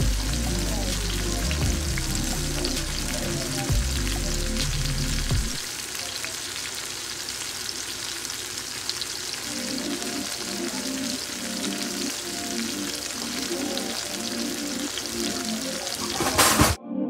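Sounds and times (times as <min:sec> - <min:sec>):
faint background music: 0:00.0 - 0:05.6, 0:09.5 - 0:17.0
chicken sizzling in hot oil: 0:00.0 - 0:16.8.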